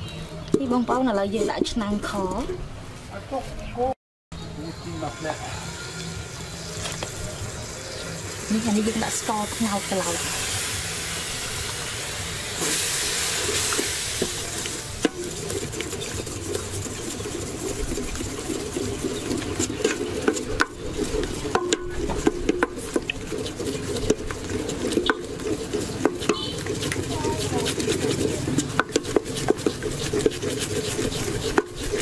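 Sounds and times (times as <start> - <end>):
melting sugar sizzling in a pot: 4.7 - 32.0
ladle knocking and scraping a pot: 12.6 - 32.0.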